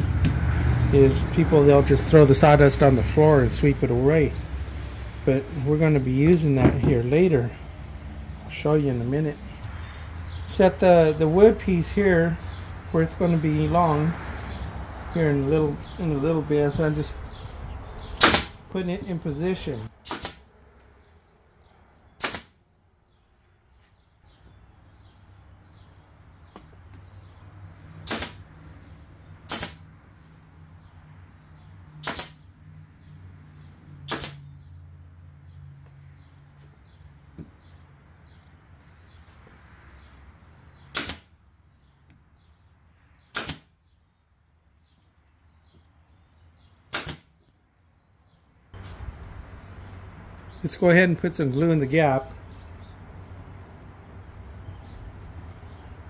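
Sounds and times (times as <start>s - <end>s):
pneumatic nail gun firing: 18.2s - 18.6s, 20.0s - 20.4s, 22.2s - 22.6s, 28.0s - 28.4s, 29.5s - 29.8s, 32.0s - 32.4s, 34.1s - 34.4s, 40.9s - 41.3s, 43.3s - 43.7s, 46.9s - 47.4s.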